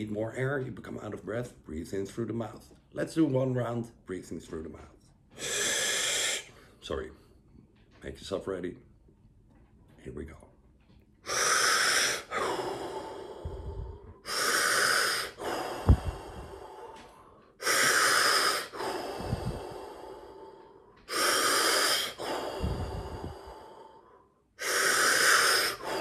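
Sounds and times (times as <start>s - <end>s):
man breathing forcefully: 5.3s - 6.8s, 11.2s - 26.0s.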